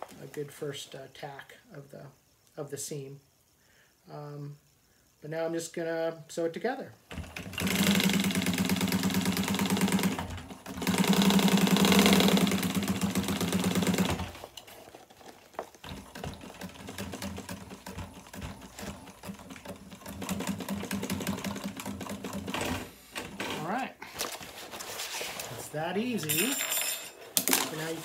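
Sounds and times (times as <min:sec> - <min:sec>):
sewing machine stitching: 0:07.1 - 0:14.8, 0:15.8 - 0:23.6.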